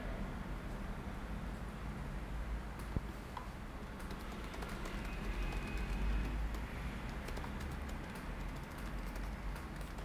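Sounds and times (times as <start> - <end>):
keyboard and mouse clicks: 2.8 - 10.0.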